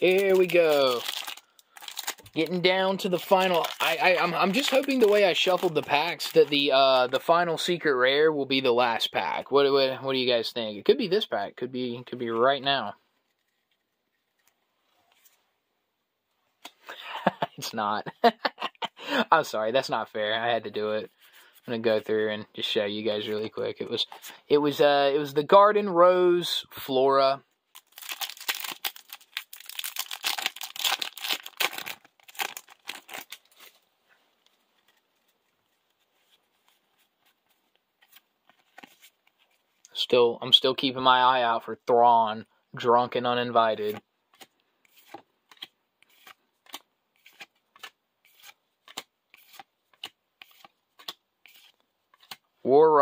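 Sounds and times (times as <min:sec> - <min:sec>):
foil wrapper crinkling and tearing: 0:00.0 - 0:06.6, 0:27.7 - 0:33.8.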